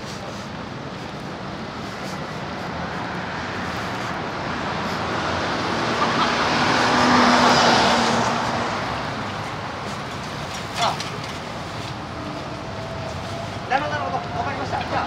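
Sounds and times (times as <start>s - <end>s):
vehicle passing with engine: 0.7s - 10.5s.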